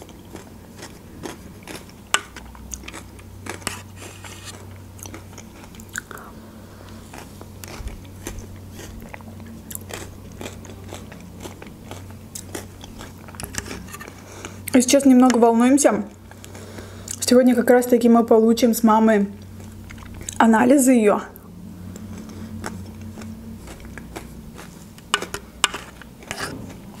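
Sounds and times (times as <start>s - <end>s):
mouth chewing crunchy food: 0.0s - 14.8s, 19.4s - 20.5s, 21.4s - 27.0s
low steady hum: 0.0s - 27.0s.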